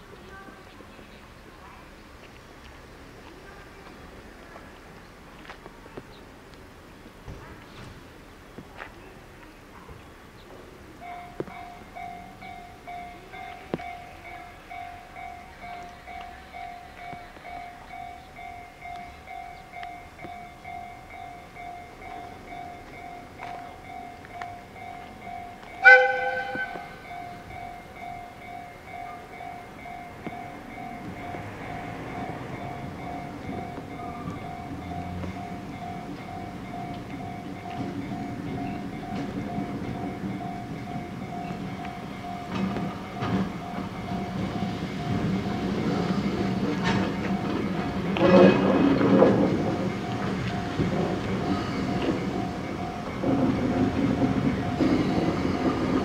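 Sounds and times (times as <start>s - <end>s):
electric locomotive rolling slowly: 0.0s - 56.0s
warning bell dinging: 11.0s - 48.8s, 49.5s - 56.0s
locomotive horn blast: 25.8s - 27.0s
wheels clattering over rail joints: 30.2s - 56.0s.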